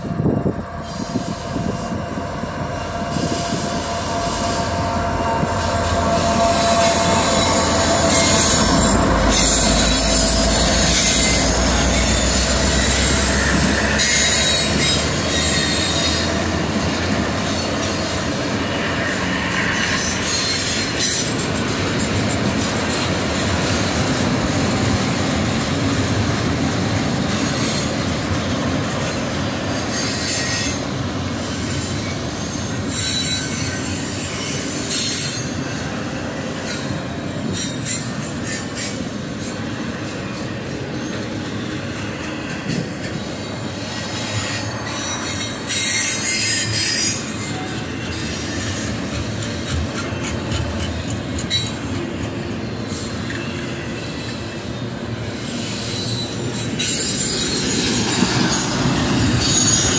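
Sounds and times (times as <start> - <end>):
locomotive engine rumble: 0.0 - 14.0
train wheels rolling on rails: 0.0 - 59.9
high-pitched wheel noise: 0.6 - 22.7.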